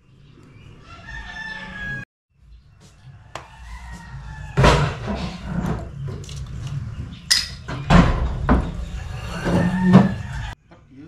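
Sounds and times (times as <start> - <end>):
knocks and clatters: 4.6 - 10.9.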